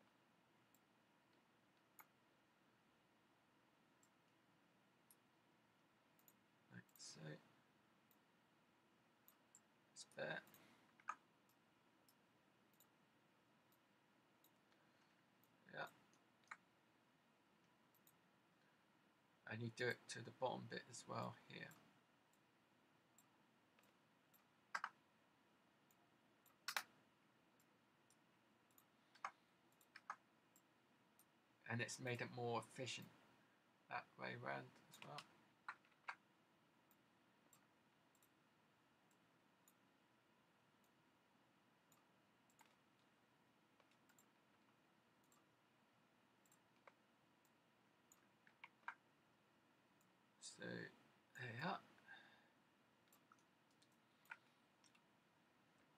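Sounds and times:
computer mouse clicks: 0.7 - 2.2, 6.2 - 7.4, 9.2 - 13.0, 13.7 - 16.7, 17.6 - 18.2, 23.1 - 25.1, 25.8 - 31.4, 34.7 - 38.4, 41.8 - 45.6, 46.4 - 49.2, 53.0 - 55.1.

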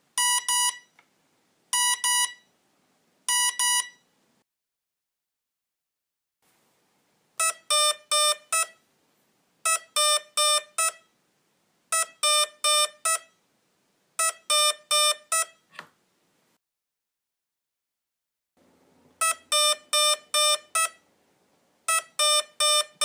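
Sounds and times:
electronic short beeps: 0.2 - 0.9, 1.8 - 2.5, 3.3 - 4.0, 7.4 - 8.8, 9.7 - 11.1, 19.2 - 21.0, 21.9 - 23.0.

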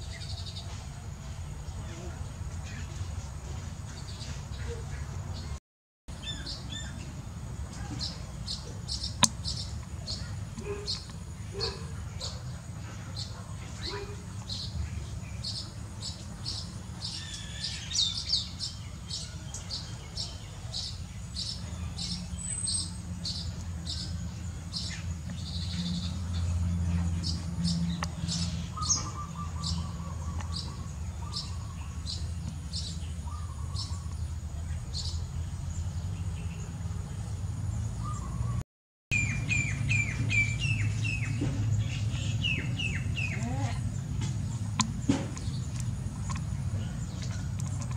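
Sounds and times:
birds chirping: 0.0 - 47.9
low steady rumble: 39.2 - 47.9.

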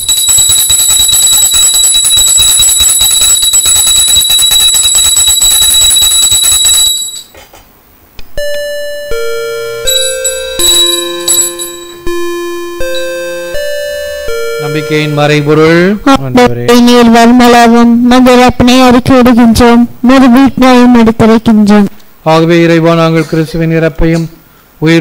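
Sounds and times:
electronic chime melody: 0.0 - 7.3, 8.4 - 15.8
consecration bell ringing: 0.0 - 7.4, 8.4 - 15.8.

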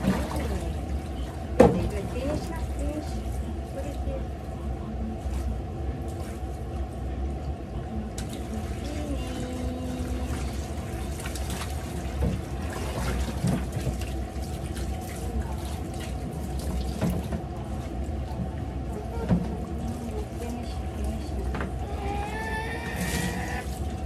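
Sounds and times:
sponge scrubbing pot: 8.5 - 24.0.

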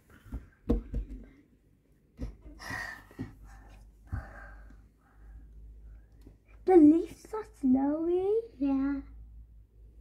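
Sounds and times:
soft breathy gasps: 2.5 - 5.5.

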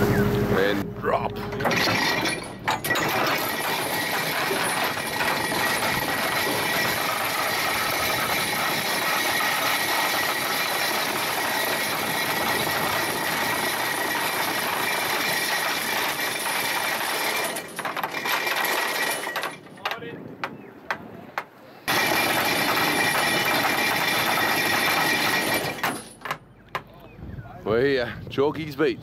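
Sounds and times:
anchor chain rattling: 1.5 - 20.2, 21.9 - 26.5.

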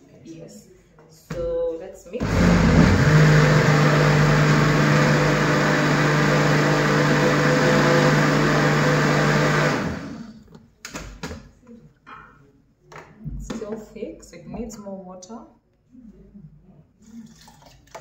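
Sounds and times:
blender running: 2.2 - 10.4.

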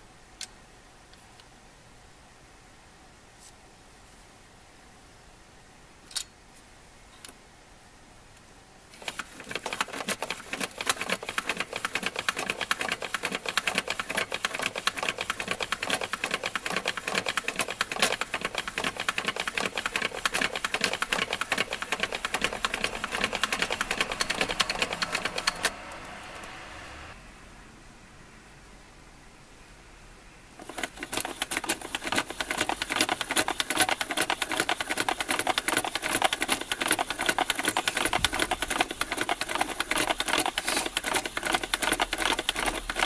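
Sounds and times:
hand-cranked toy clattering: 9.0 - 25.7, 30.6 - 43.0.

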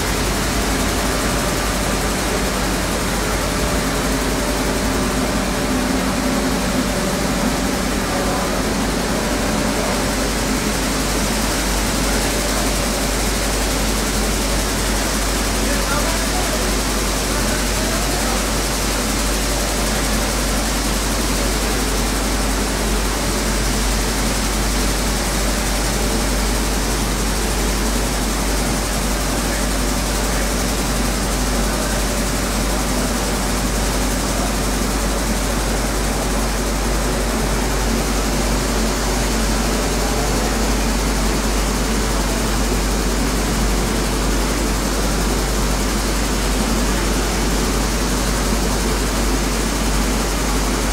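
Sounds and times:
flour mill mechanical drone: 0.0 - 50.9.

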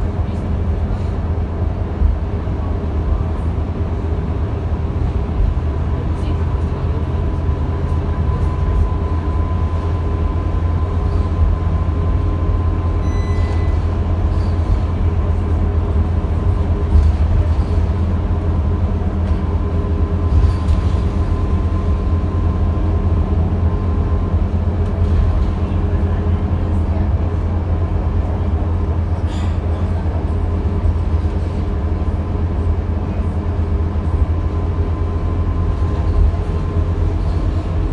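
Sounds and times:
bus engine and road rumble: 0.0 - 37.9
short electronic beep: 13.0 - 13.9.

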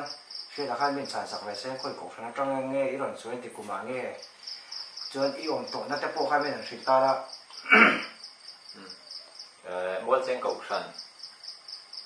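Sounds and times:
cricket chirping: 0.0 - 12.0
people talking: 0.6 - 4.2, 5.1 - 8.0, 9.7 - 11.0.

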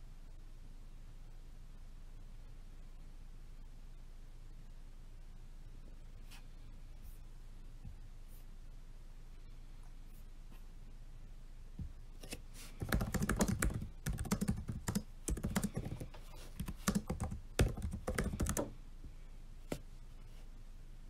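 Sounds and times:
typing on laptop keyboard: 12.8 - 18.7.

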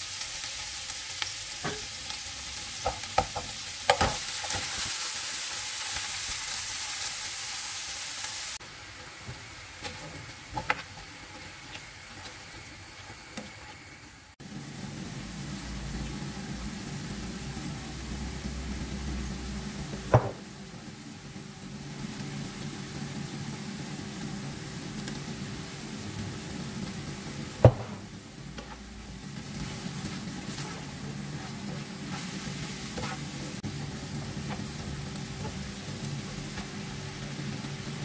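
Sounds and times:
vegetables sizzling in a frying pan: 0.0 - 38.0
spatula stirring in a pan: 8.6 - 14.3, 27.8 - 38.0.

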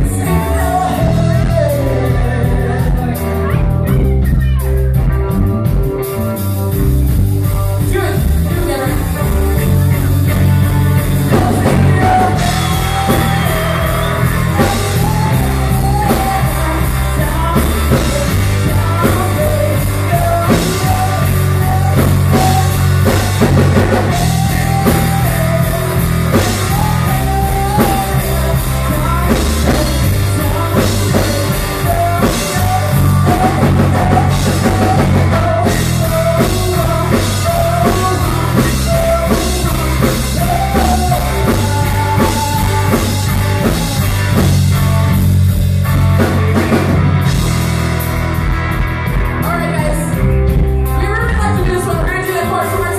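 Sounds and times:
person singing into microphone: 0.0 - 4.6, 7.8 - 45.2
drum kit: 0.0 - 52.9
electric guitars: 0.0 - 52.9.

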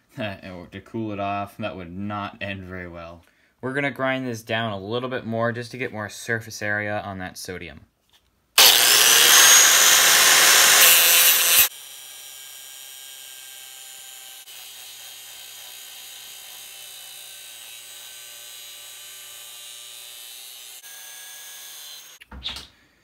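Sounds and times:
angle grinder grinding steel: 8.6 - 22.2.

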